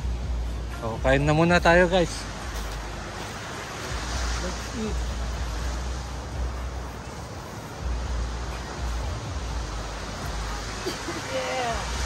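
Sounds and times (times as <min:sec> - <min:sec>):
beach surf: 0:00.0 - 0:12.0.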